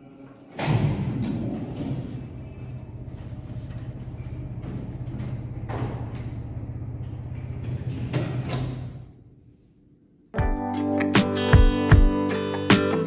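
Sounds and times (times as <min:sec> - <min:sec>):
lift machinery humming: 0:01.6 - 0:09.1.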